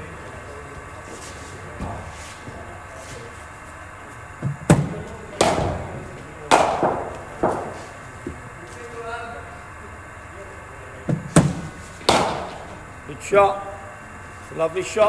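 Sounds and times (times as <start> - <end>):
bat hitting cricket ball: 4.7 - 5.9, 6.5 - 7.8, 11.3 - 12.7.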